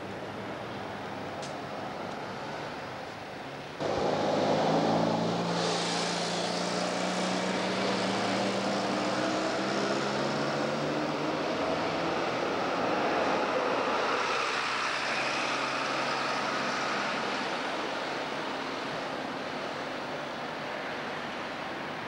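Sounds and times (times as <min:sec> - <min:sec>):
traffic din: 0:00.0 - 0:22.0
vehicle engine droning: 0:03.8 - 0:12.8
brief hiss: 0:05.5 - 0:06.5.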